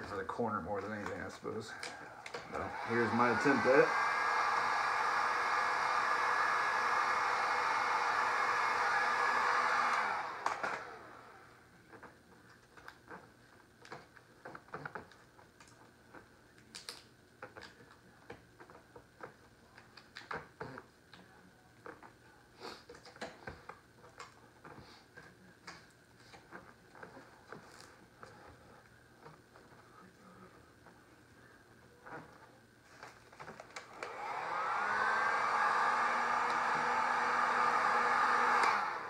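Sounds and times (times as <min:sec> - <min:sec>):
heat gun blowing: 0:01.9 - 0:11.5, 0:33.8 - 0:39.0
vinyl film crackling: 0:11.7 - 0:33.9.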